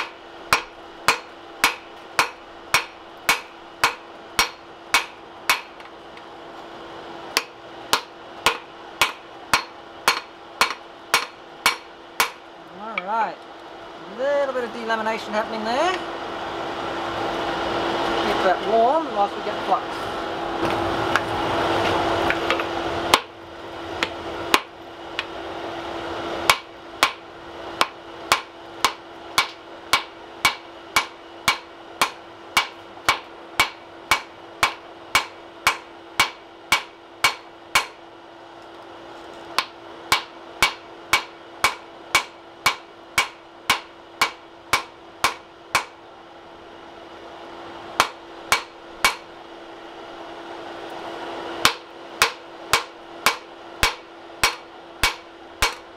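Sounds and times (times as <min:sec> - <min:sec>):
hammer striking metal on anvil: 0:00.0 - 0:05.9, 0:07.4 - 0:12.4, 0:26.5 - 0:27.2, 0:27.8 - 0:38.0, 0:39.6 - 0:46.0, 0:48.0 - 0:49.3, 0:51.6 - 0:55.9
steady low hum: 0:00.0 - 0:55.9.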